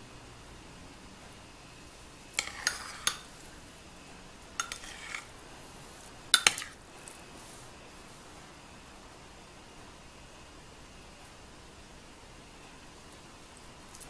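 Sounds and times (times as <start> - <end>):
metal spoon scraping ceramic bowl: 2.4 - 3.3, 4.6 - 5.3, 6.4 - 6.8.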